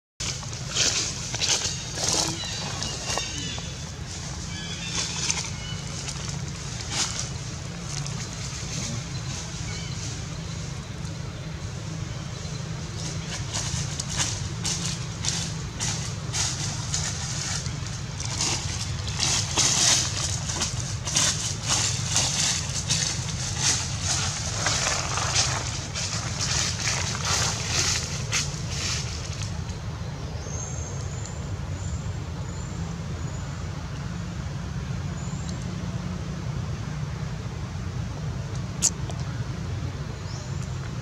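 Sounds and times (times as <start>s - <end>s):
dry leaves crackling and rustling: 0.2s - 30.4s.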